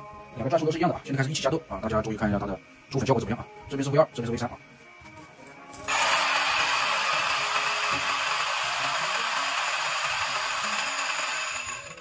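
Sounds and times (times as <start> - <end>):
electric coffee grinders grinding: 5.7 - 12.0.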